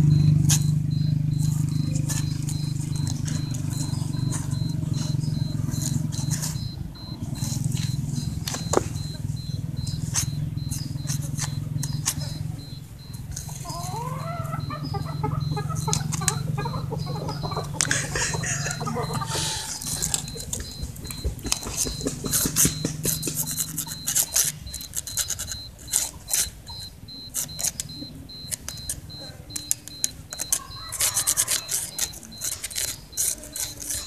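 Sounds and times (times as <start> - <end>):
wavering animal calls: 0.0 - 34.0
twig scraping on concrete: 30.4 - 34.0.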